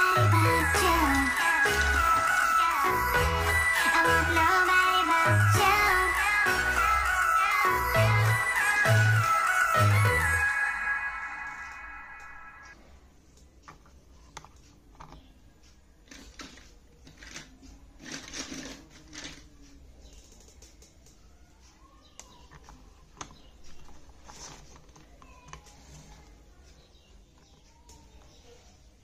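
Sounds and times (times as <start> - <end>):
plastic pieces rubbing: 16.0 - 19.7, 22.6 - 26.3
plastic toy pieces clicking: 16.0 - 21.2.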